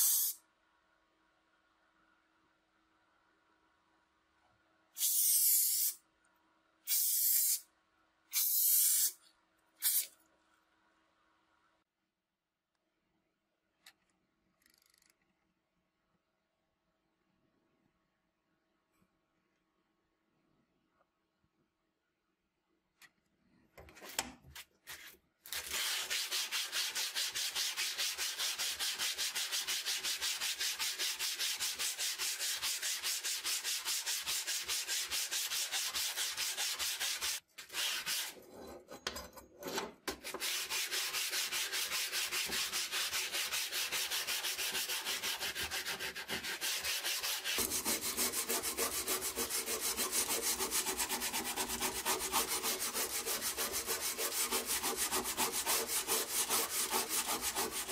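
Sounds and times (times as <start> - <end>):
sanding block scraping rusted steel: 25.6 - 38.4, 40.2 - 57.9.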